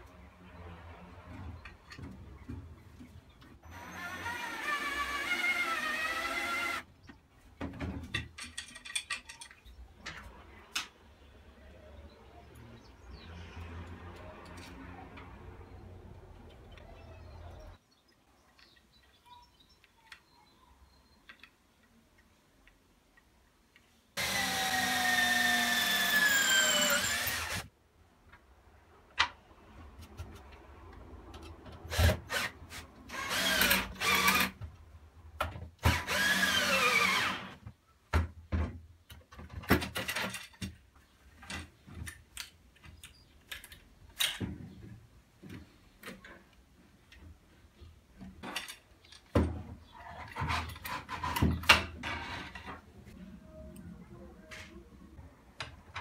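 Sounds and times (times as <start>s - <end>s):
cordless drill into wood: 3.7s - 6.8s, 24.2s - 27.7s, 31.9s - 34.6s, 35.8s - 37.6s.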